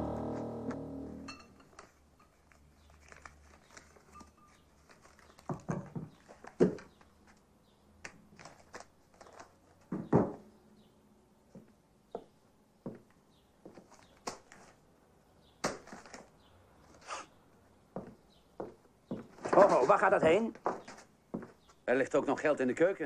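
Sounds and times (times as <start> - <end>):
soft knocks taps and rustles: 4.9 - 7.4.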